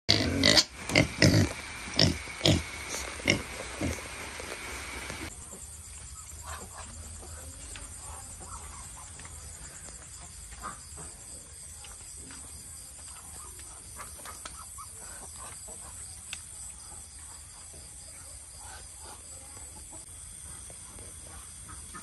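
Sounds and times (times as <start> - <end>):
pigs squealing and grunting: 0.1 - 4.1.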